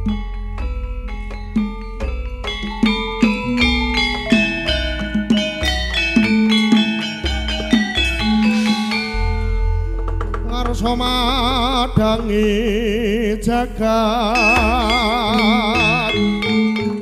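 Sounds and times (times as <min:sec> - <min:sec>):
melody with wavering vibrato: 0:00.0 - 0:12.1, 0:13.8 - 0:17.0
ringing metallophone notes: 0:00.0 - 0:12.1, 0:13.8 - 0:17.0
hand drum strokes: 0:01.3 - 0:12.4.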